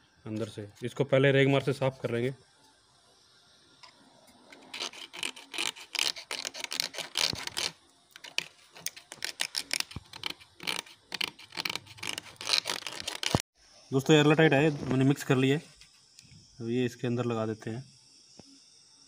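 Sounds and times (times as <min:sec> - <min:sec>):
sandpaper rubbing on plastic: 0:04.5 - 0:13.4.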